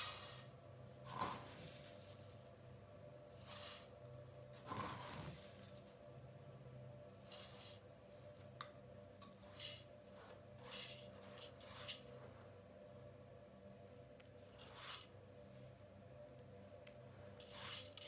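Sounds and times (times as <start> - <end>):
rice swishing in a metal pot: 0.0 - 2.6, 3.2 - 6.0, 14.6 - 15.2, 17.4 - 18.0
faint steady hum: 0.0 - 18.0.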